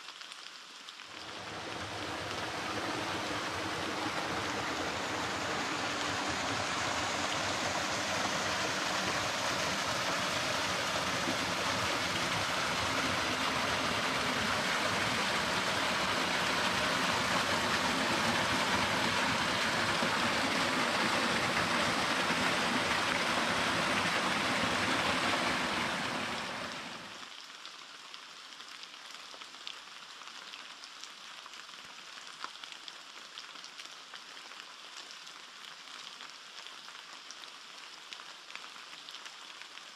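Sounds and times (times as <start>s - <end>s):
stream rushing over rocks: 1.1s - 27.2s.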